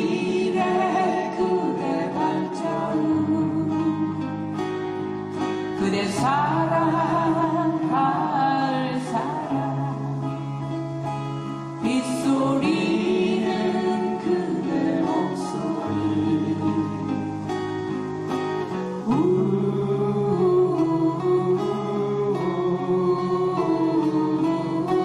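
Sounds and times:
acoustic guitars strumming: 0.0s - 25.0s
person singing: 0.0s - 25.0s.

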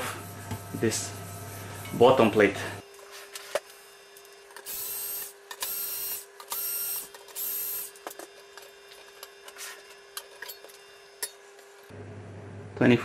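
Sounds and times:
cordless screwdriver whining: 4.6s - 8.0s.

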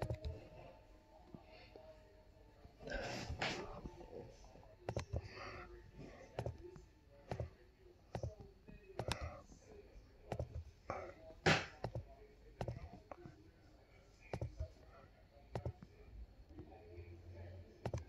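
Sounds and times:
computer mouse clicks: 0.0s - 0.4s, 4.9s - 5.3s, 6.3s - 6.7s, 8.1s - 9.4s, 10.3s - 10.7s, 11.8s - 13.3s, 14.3s - 14.7s, 15.5s - 15.9s
faint voices: 0.0s - 18.0s.

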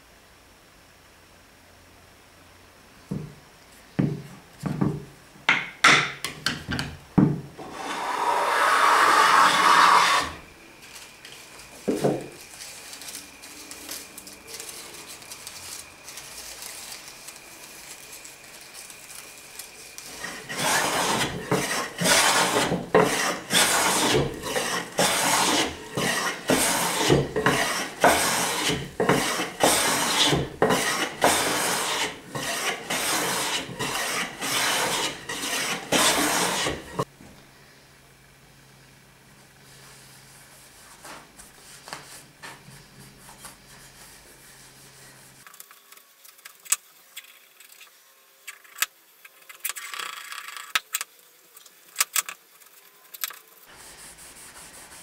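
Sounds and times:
hand plane scraping wood: 7.6s - 10.4s, 20.1s - 37.1s.

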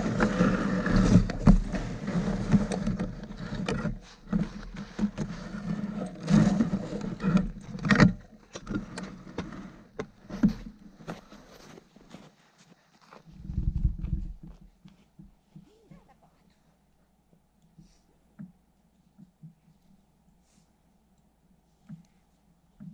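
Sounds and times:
sled runners scraping on snow: 0.0s - 14.4s
sled knocks and creaks: 0.0s - 16.1s.

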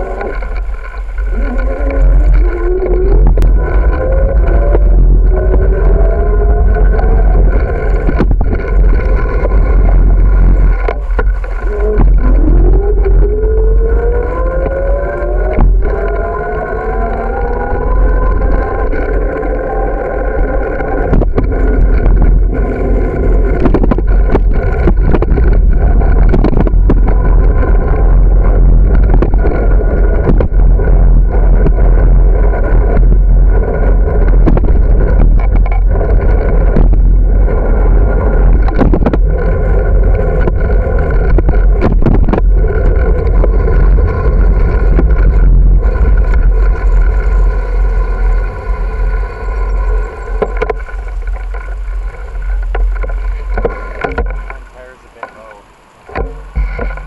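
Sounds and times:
camera clicks and rattles: 0.0s - 19.6s, 20.4s - 32.1s, 32.9s - 37.2s, 38.3s - 47.3s
wind rumble on microphone: 0.0s - 57.0s.

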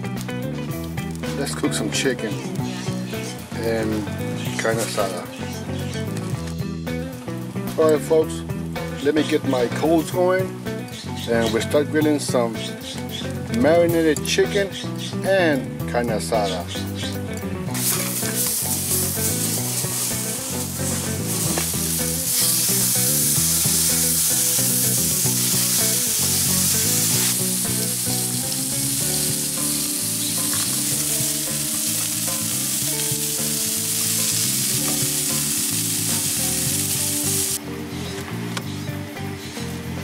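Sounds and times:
meat sizzling on charcoal grill: 16.4s - 37.6s.

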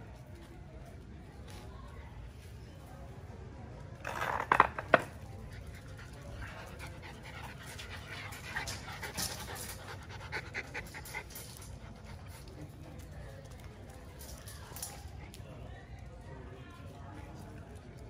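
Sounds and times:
dogs panting: 5.4s - 13.6s.

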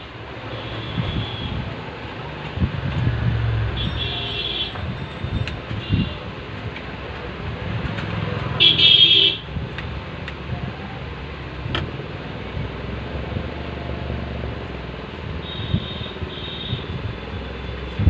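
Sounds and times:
high-pitched vehicle horn honk: 15.5s - 16.9s.

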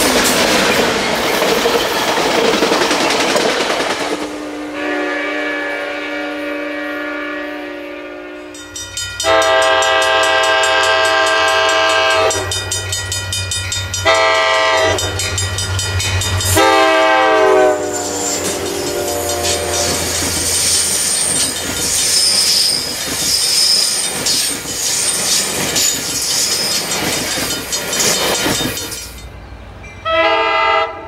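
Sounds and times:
train wheels rushing on rails: 0.0s - 5.0s, 8.6s - 30.0s
multi-tone locomotive horn: 4.3s - 12.6s, 14.0s - 15.2s, 16.5s - 20.8s, 30.0s - 31.0s
train horn: 4.3s - 12.6s, 14.0s - 15.2s, 16.5s - 20.9s, 30.0s - 31.0s
diesel locomotive engine rumble: 9.2s - 31.0s.

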